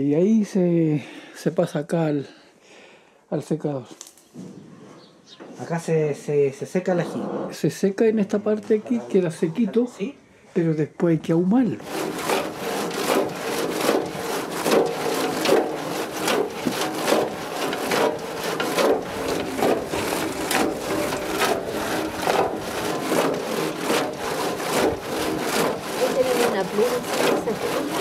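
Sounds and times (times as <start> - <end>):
wooden paddle stirring chilies: 11.8 - 28.0.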